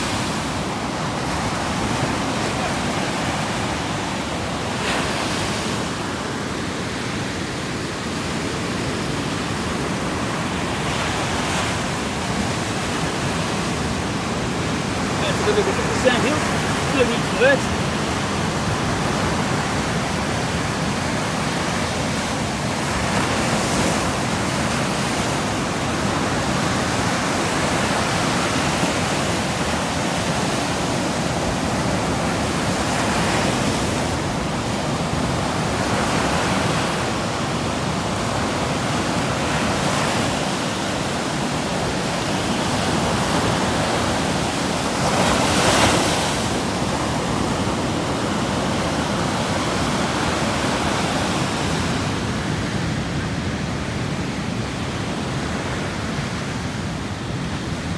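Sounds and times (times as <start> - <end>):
ocean surf breaking: 0.0 - 57.9.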